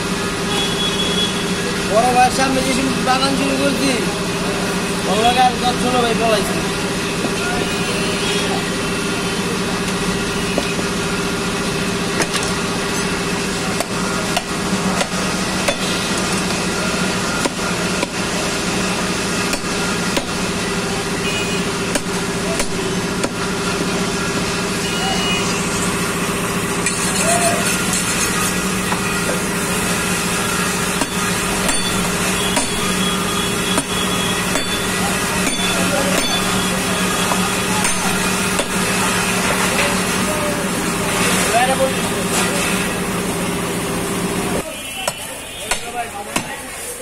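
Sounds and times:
steady engine hum: 0:00.0 - 0:47.0
knife chopping bone on wood block: 0:13.8 - 0:16.0, 0:17.4 - 0:18.2, 0:19.5 - 0:20.4, 0:21.9 - 0:23.4, 0:31.0 - 0:33.0, 0:33.7 - 0:34.8, 0:37.8 - 0:38.8, 0:45.0 - 0:46.6.

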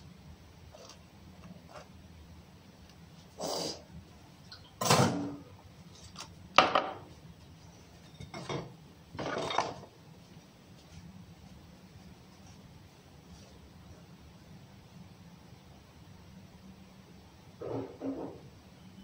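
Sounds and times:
low steady hum: 0:00.0 - 0:19.0
dishes and utensils clinking: 0:08.0 - 0:09.9.

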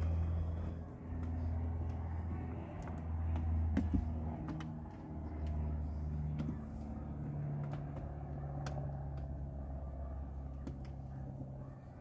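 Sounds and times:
light clicks and taps on plastic: 0:01.1 - 0:09.5, 0:10.2 - 0:11.6.

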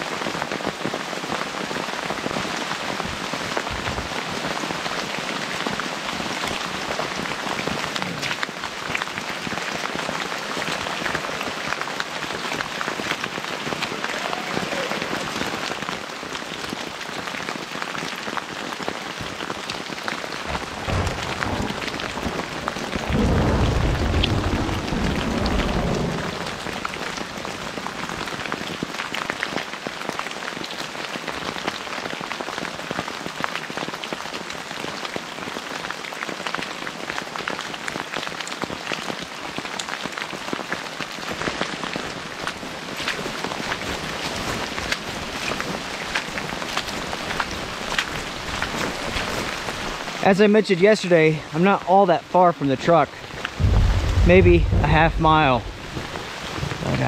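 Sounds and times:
freezing rain falling: 0:00.0 - 0:57.0
thunder rumbling: 0:20.4 - 0:28.1, 0:53.3 - 0:57.0.

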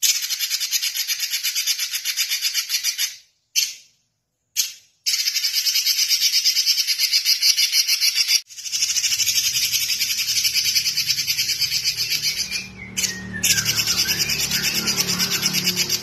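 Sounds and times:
bird singing high notes: 0:08.8 - 0:16.0.

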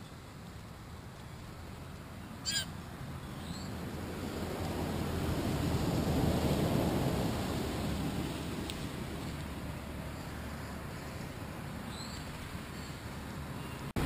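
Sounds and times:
low rushing noise: 0:00.4 - 0:14.0
blue jay harsh call: 0:02.4 - 0:02.8.

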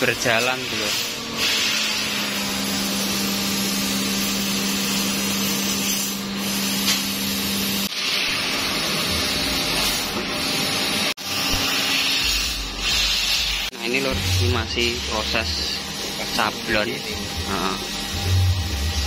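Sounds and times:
laser cutter hiss: 0:00.0 - 0:19.0
machine low hum: 0:13.8 - 0:19.0.

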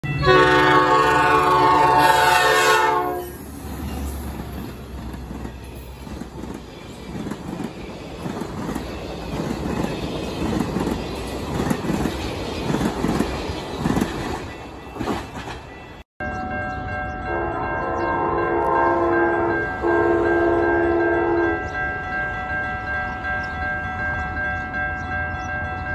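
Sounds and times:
train rumbling past: 0:00.0 - 0:25.9
train air horn: 0:00.2 - 0:03.4, 0:17.3 - 0:21.6.

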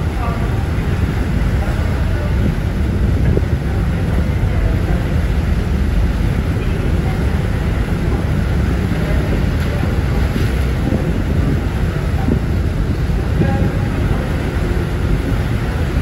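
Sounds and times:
low rumble: 0:00.0 - 0:16.0
water churning along hull: 0:00.0 - 0:16.0
wind buffeting microphone: 0:00.0 - 0:16.0.

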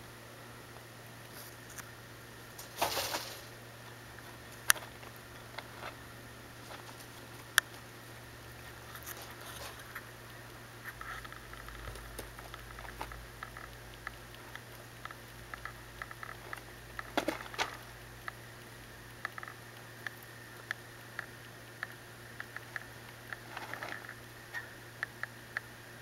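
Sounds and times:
scuffling clicks: 0:06.6 - 0:07.8.

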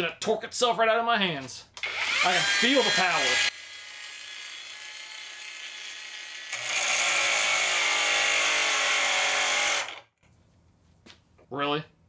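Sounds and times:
angle grinder cutting metal bar: 0:01.8 - 0:10.1.

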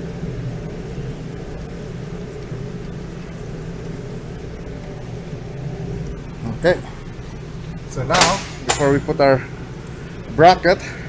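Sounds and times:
low machinery hum: 0:00.0 - 0:11.0.

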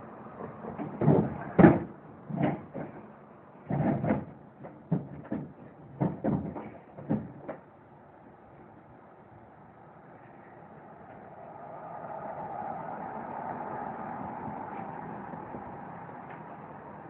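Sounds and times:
irregular knocks and thumps: 0:00.4 - 0:07.7.

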